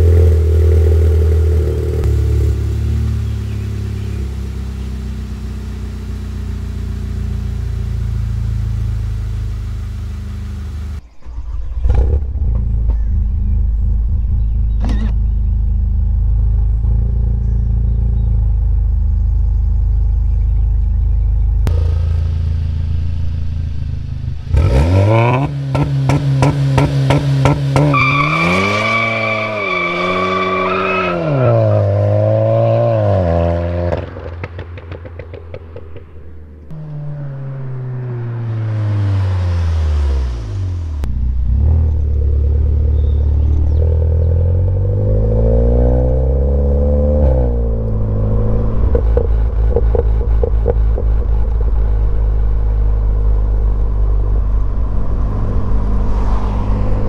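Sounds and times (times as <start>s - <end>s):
car engine revving: 0.0s - 57.0s
exhaust crackles: 0.0s - 57.0s
car accelerating through upshifts: 24.5s - 35.9s, 36.6s - 57.0s.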